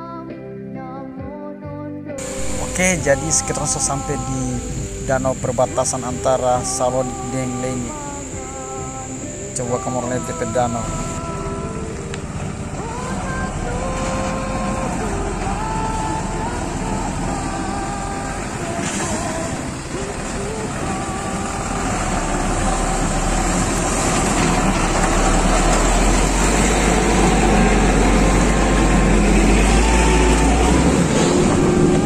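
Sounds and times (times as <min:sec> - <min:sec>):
diesel truck engine rumbling: 0:02.2 - 0:32.0.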